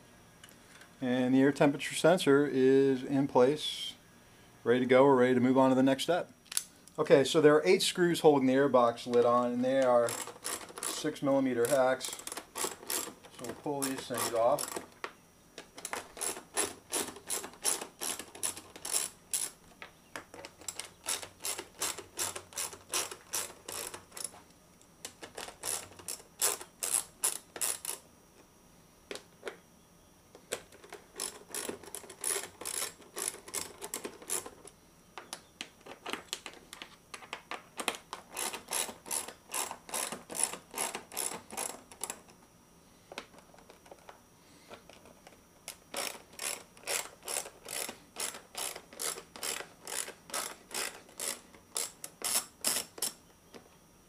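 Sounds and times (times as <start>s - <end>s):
hand ratchet clicking: 9.8s - 14.9s, 15.8s - 19.6s, 20.6s - 24.4s, 25.2s - 28.0s, 30.8s - 34.6s, 38.2s - 42.2s, 45.7s - 53.2s.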